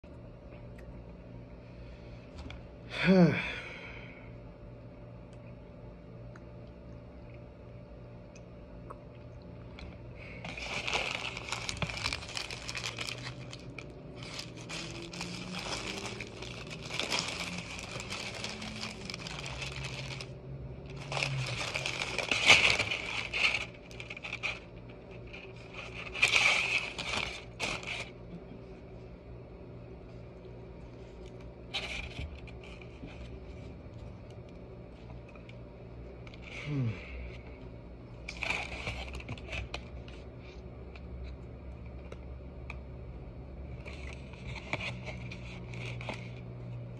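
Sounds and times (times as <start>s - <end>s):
wrapper crinkling and rustling: 10.2s - 28.2s, 38.3s - 40.2s, 43.8s - 46.4s.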